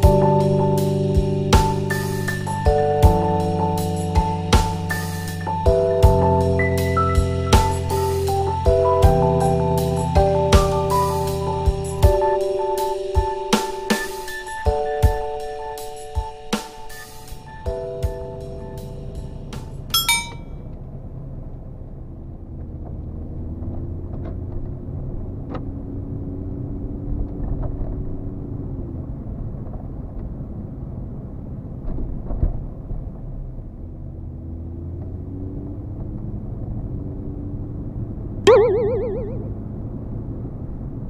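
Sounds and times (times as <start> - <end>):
short bright chime: 20.0 - 20.5.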